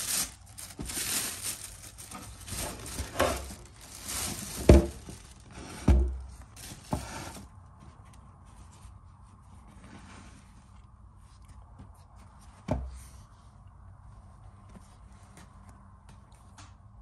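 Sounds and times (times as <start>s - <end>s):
plastic bag rustling: 0.0s - 7.6s
faint handling sounds: 0.0s - 16.8s.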